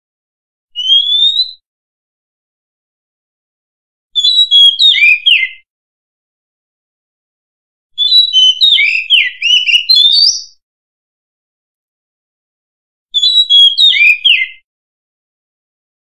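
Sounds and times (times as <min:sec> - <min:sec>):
bird singing whistled notes: 0:00.8 - 0:01.6, 0:04.2 - 0:05.7, 0:08.0 - 0:10.6, 0:13.2 - 0:14.7.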